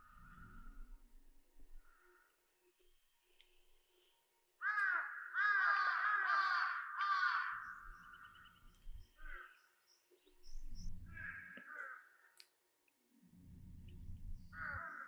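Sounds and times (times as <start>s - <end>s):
crow cawing: 1.8s - 2.4s, 4.6s - 8.5s, 9.2s - 9.7s, 11.1s - 12.4s, 14.5s - 15.0s.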